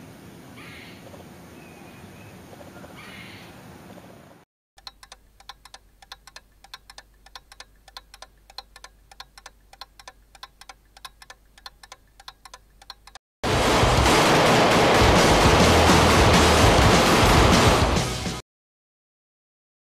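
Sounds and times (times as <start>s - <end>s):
rapid sharp ticks: 4.8s - 13.2s
loud rushing noise: 13.4s - 18.4s.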